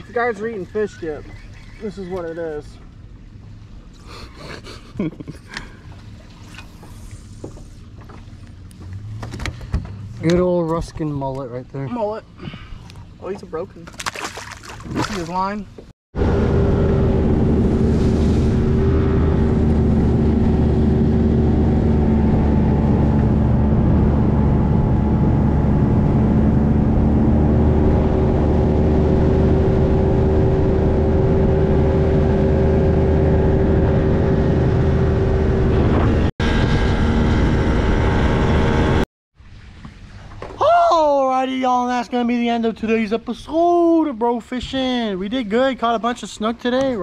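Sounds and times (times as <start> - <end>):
outboard motor running: 16.2 - 38.9.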